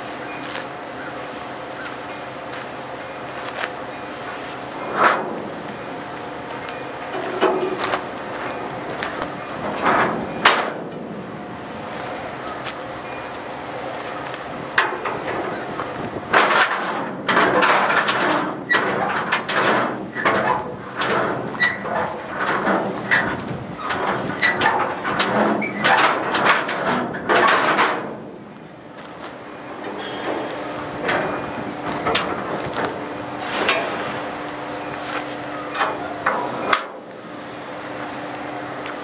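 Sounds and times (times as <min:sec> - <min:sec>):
footsteps crunching on gravel: 0:00.0 - 0:10.2, 0:11.8 - 0:16.2, 0:20.7 - 0:24.4, 0:28.4 - 0:36.2, 0:37.2 - 0:39.0.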